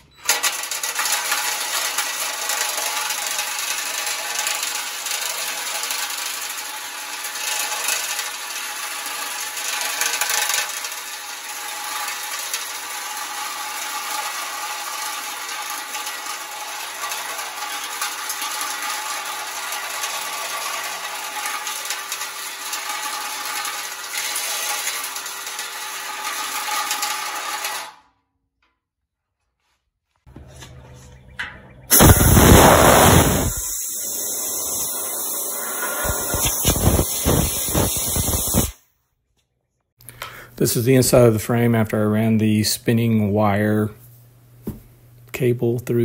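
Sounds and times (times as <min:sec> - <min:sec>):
drill running: 0:00.0 - 0:28.0, 0:31.9 - 0:38.8
cable rattling and scraping in metal: 0:00.0 - 0:28.8, 0:30.3 - 0:38.7.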